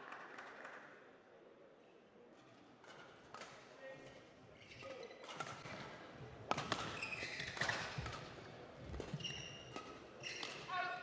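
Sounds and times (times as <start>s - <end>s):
shoes squeaking on floor: 9.1s - 10.5s.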